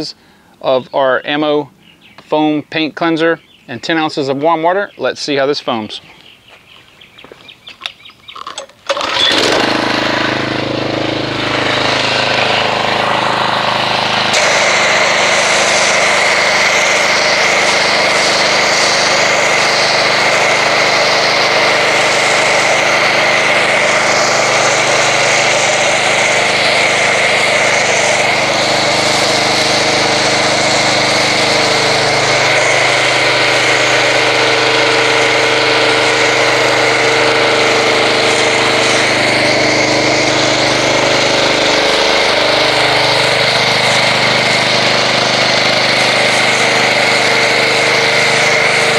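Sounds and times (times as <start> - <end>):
pressure washer engine running: 8.6 - 48.9
foam cannon spraying hiss: 12.0 - 48.9.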